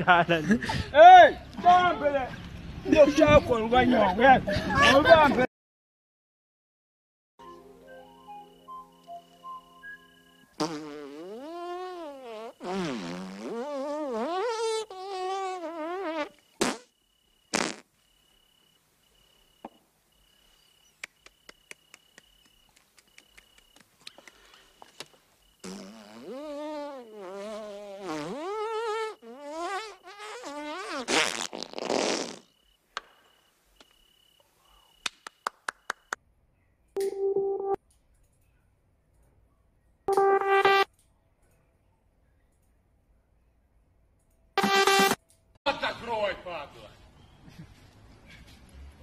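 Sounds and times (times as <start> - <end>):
cricket chirping: 7.4 - 10.6, 13.5 - 31.0, 31.8 - 36.2
comic farts: 10.6 - 16.9, 17.5 - 17.9, 25.6 - 32.5.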